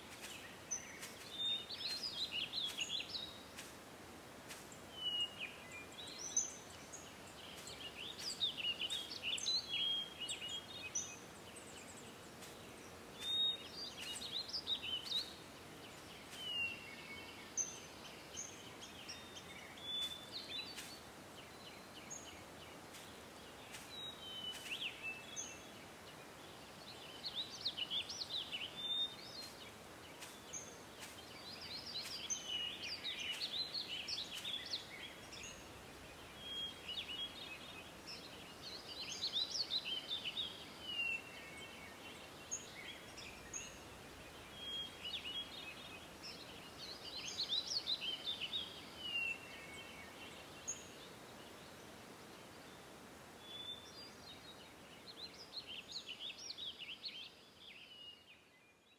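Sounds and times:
faint steady hiss: 0.0s - 58.9s
songbirds singing: 0.0s - 58.9s.

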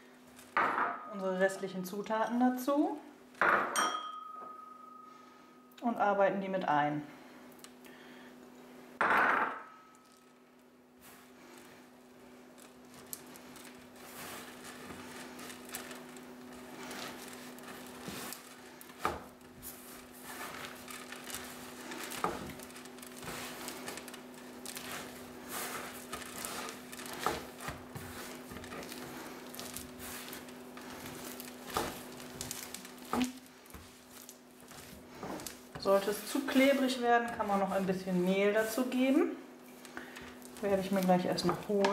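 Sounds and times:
dough rustling and squishing: 0.0s - 0.6s, 10.0s - 41.9s.

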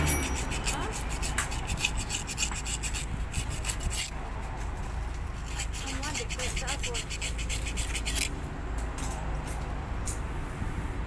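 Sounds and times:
steel brush scrubbing metal: 0.0s - 4.2s, 5.4s - 8.3s.

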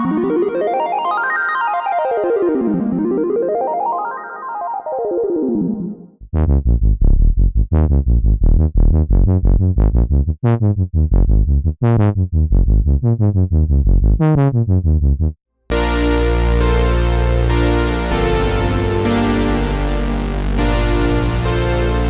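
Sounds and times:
falling chiptune arpeggio: 0.0s - 6.2s, 15.7s - 22.0s
synth sawtooth bass notes: 6.2s - 22.0s.

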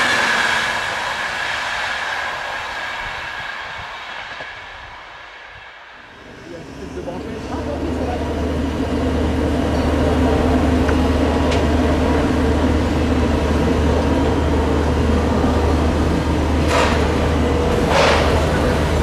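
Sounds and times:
steam hiss bursts: 0.0s - 7.1s
steam locomotive rumbling: 0.0s - 19.0s.

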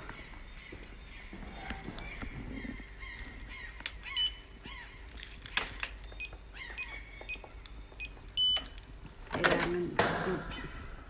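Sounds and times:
small birds chirping: 0.0s - 11.0s
keypad beeps: 4.1s - 4.4s, 6.1s - 8.8s
keys jangling: 5.0s - 6.5s.

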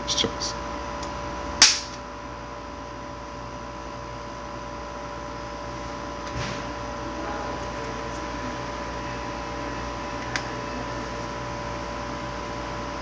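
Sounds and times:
electrical hum: 0.0s - 13.0s.

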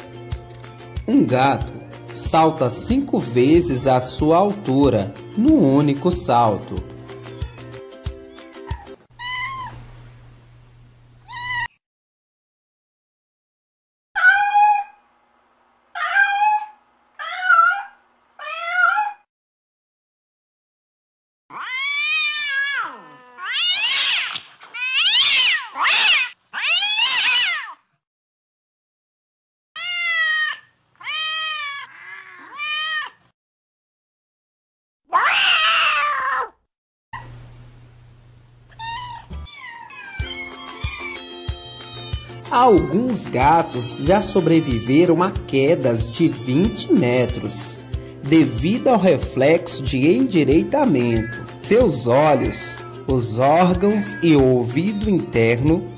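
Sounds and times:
music: 0.0s - 9.1s, 39.3s - 39.5s, 40.1s - 55.9s
cat meowing: 7.3s - 7.8s, 8.5s - 9.8s, 11.2s - 11.8s, 14.2s - 15.0s, 16.0s - 19.3s, 21.5s - 27.9s, 29.8s - 33.3s, 35.1s - 36.6s, 38.7s - 45.0s, 51.1s - 51.6s.

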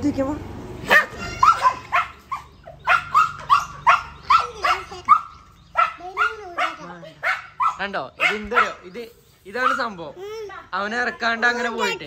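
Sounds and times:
dog barking: 0.8s - 9.0s, 9.6s - 10.0s.

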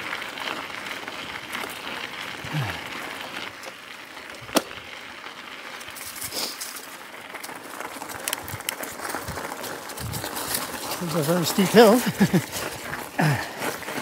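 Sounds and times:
bike tyres rolling on dirt: 0.0s - 14.0s.

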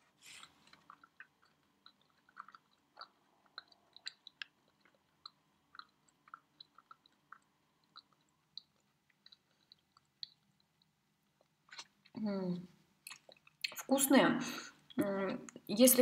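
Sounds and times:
faint chewing with mouth clicks: 0.0s - 13.9s.

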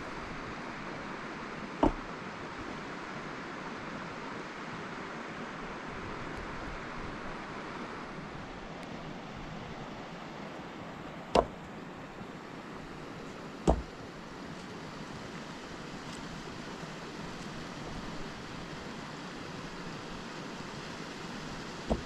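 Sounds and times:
steady rushing hiss: 0.0s - 22.0s
sharp knocks: 1.8s - 2.1s, 11.3s - 11.6s, 13.6s - 13.9s.

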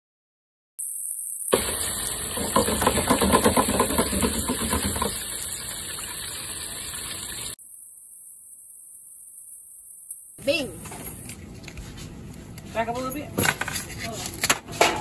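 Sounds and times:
oil bubbling and crackling: 0.8s - 10.3s.

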